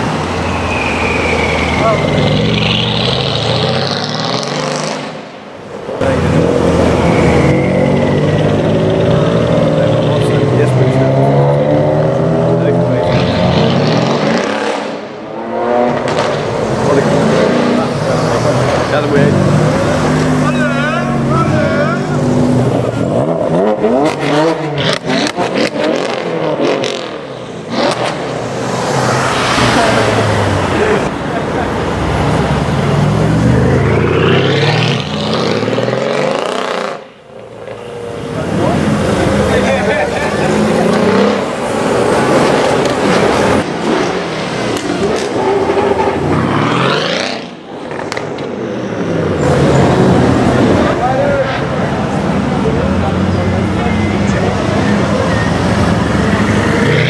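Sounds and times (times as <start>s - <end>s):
car engine revving hard: 1.7s - 5.2s, 6.0s - 31.2s, 32.3s - 37.1s, 38.2s - 48.1s.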